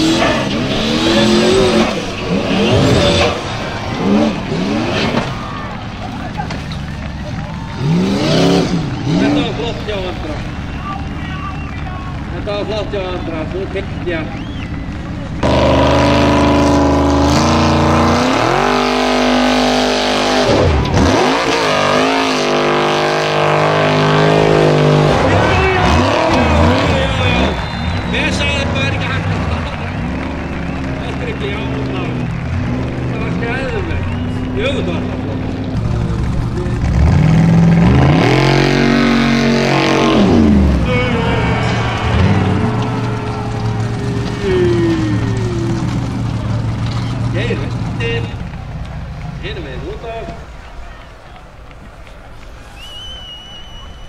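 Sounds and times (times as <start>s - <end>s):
wheels spinning in dirt: 0.0s - 19.8s, 24.9s - 39.2s, 39.8s - 54.0s
buggy engine revving: 0.0s - 53.8s.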